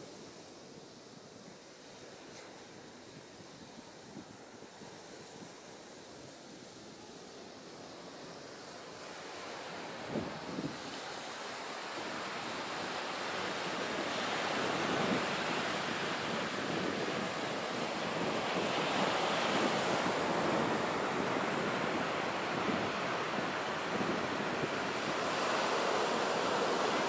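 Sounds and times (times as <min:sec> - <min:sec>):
ocean surf washing on beach: 0:00.0 - 0:27.0
wind buffeting microphone: 0:09.8 - 0:11.0, 0:12.0 - 0:27.0.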